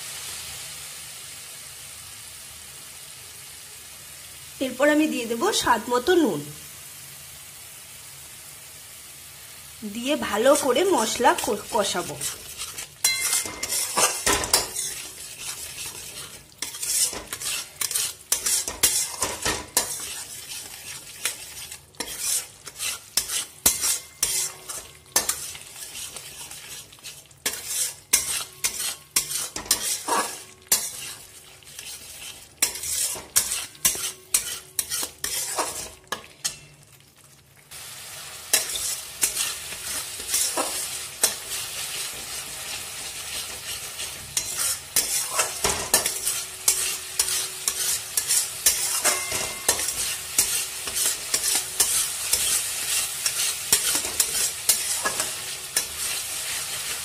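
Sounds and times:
paste sizzling in oil: 0.0s - 57.0s
metal spatula scraping a pan: 10.0s - 36.8s, 38.4s - 57.0s.

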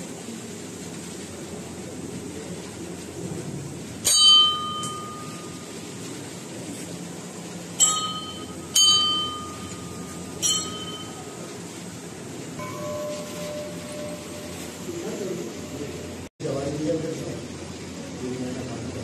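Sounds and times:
steady low background noise: 0.0s - 19.0s
temple bell strikes: 4.0s - 5.8s, 7.8s - 11.4s, 12.6s - 16.0s.

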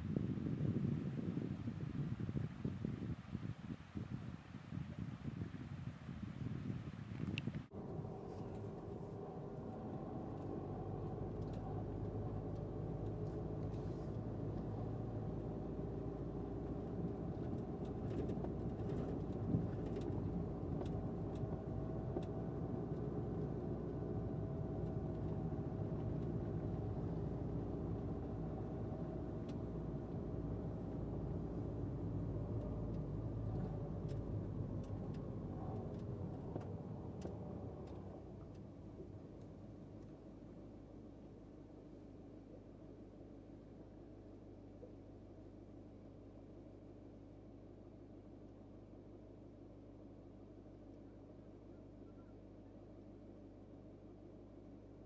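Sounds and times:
engine hum: 6.3s - 50.2s.

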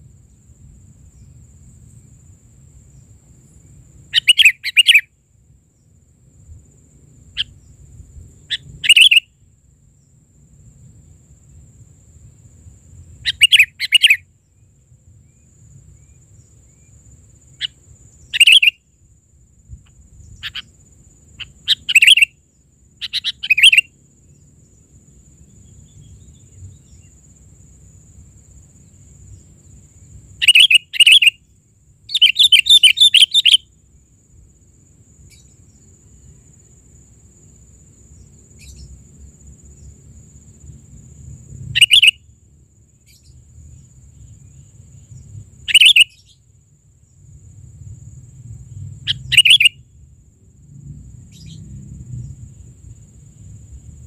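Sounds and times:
bird sharp chirps: 4.2s - 5.1s, 8.5s - 9.3s, 13.3s - 14.2s, 17.6s - 18.8s, 21.4s - 22.3s, 23.0s - 23.9s, 30.4s - 31.4s, 32.1s - 33.7s, 41.8s - 42.2s, 45.7s - 46.4s, 49.1s - 49.8s.

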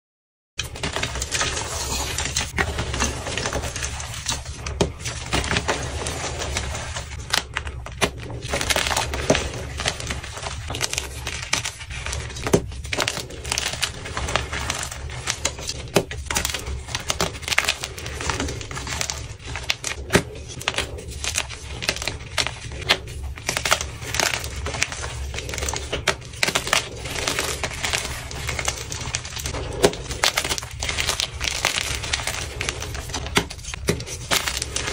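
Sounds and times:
chalk crunching and cracking by hand: 0.7s - 34.9s.

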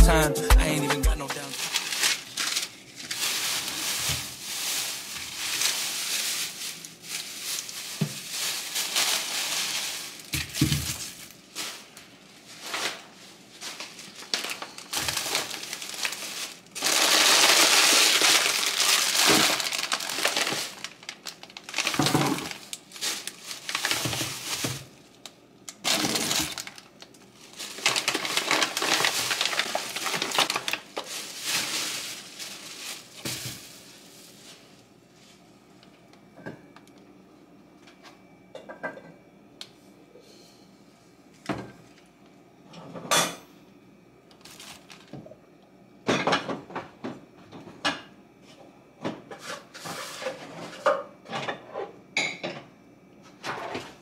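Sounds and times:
plastic bags rustling: 1.2s - 35.4s, 44.3s - 45.2s.

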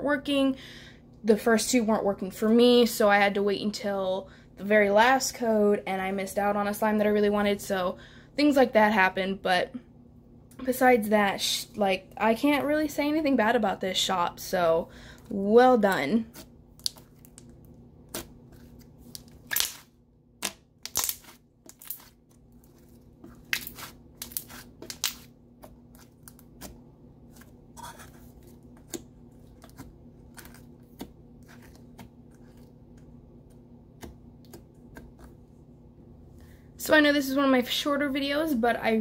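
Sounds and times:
faint steady hum: 0.0s - 39.0s
slime squishing with clicks and pops: 16.4s - 18.4s, 19.1s - 22.2s.

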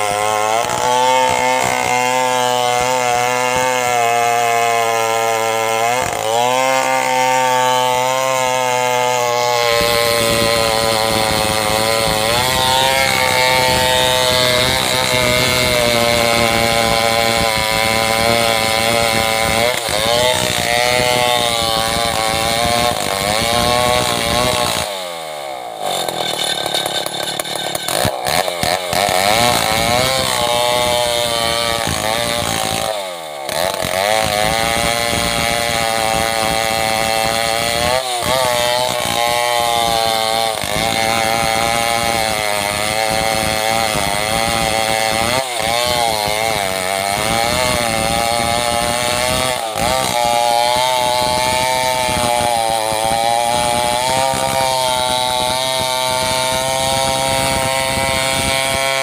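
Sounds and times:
chainsaw cutting log: 0.0s - 59.0s.

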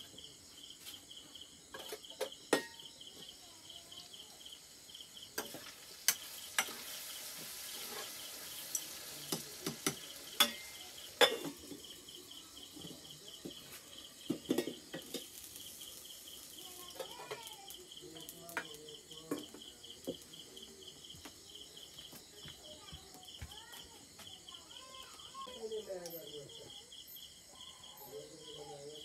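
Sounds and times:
crickets chirping: 0.0s - 29.0s
frying sizzle: 4.0s - 21.4s
metal spatula scraping pan: 6.6s - 8.2s.

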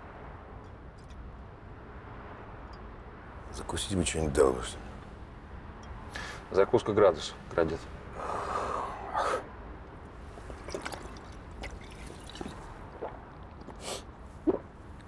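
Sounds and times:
person swallowing liquid: 10.4s - 13.8s, 14.4s - 14.7s.

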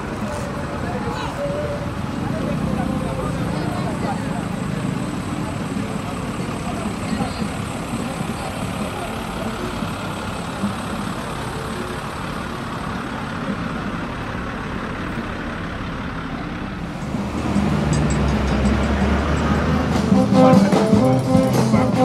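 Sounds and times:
garbage truck diesel engine: 0.0s - 22.0s
rushing street noise: 0.0s - 22.0s.

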